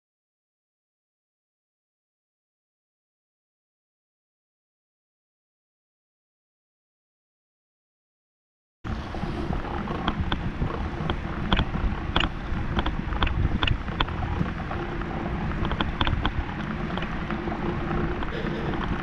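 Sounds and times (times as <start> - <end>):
bicycle tyres rumbling on cobblestones: 8.9 - 19.0
bike rattles and clicks: 8.9 - 19.0
wind on microphone: 8.9 - 19.0.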